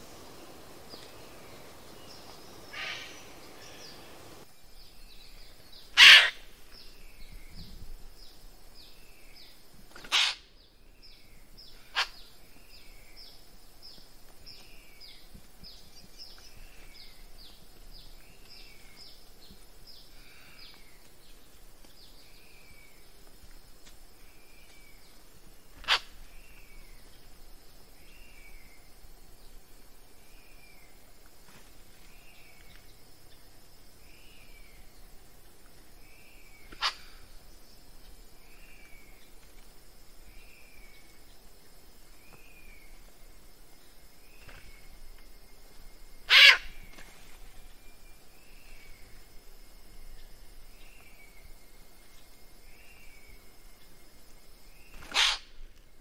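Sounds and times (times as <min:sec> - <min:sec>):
bird giving harsh short calls: 0:02.7 - 0:03.8, 0:06.0 - 0:06.4, 0:10.0 - 0:10.4, 0:25.8 - 0:26.1, 0:46.3 - 0:46.7, 0:55.0 - 0:55.5.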